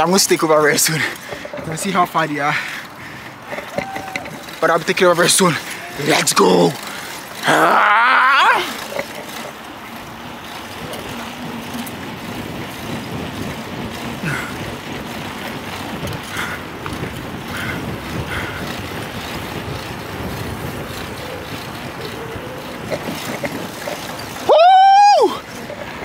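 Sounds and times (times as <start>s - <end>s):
wind rushing over microphone: 9.9s - 26.0s.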